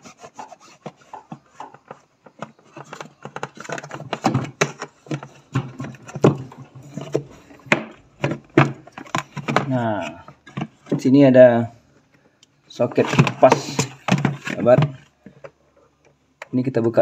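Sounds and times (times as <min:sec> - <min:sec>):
plastic cover clicking and knocking: 0:00.8 - 0:11.0, 0:13.0 - 0:15.6.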